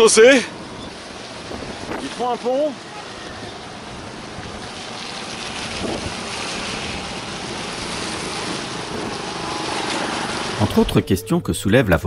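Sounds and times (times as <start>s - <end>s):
tyres hissing on wet road: 0.0s - 11.3s
wind rushing over microphone: 0.7s - 2.3s, 3.3s - 11.2s.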